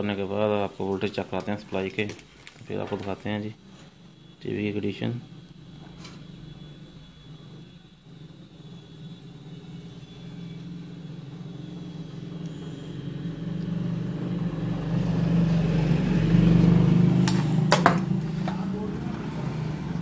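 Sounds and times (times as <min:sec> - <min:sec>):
low motor rumble: 0:05.3 - 0:20.0.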